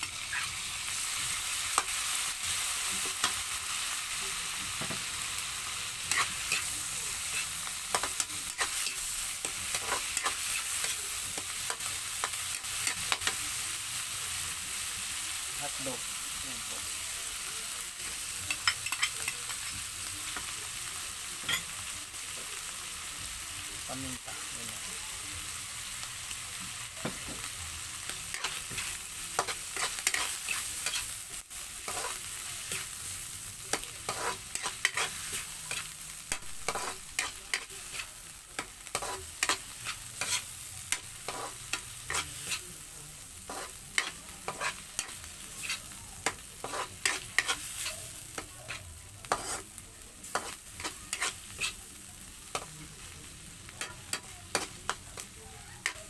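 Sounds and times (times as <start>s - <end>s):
meat sizzling in a wok: 0.0s - 56.0s
metal spatula scraping: 33.7s - 35.9s, 36.6s - 38.1s, 38.9s - 42.6s, 43.5s - 49.7s, 50.3s - 51.8s.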